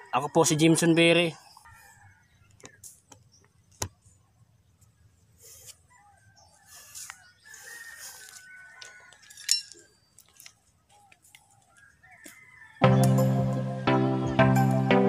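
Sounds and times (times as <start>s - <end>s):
rooster crowing: 0.0s - 2.5s, 5.8s - 9.5s, 11.7s - 13.0s.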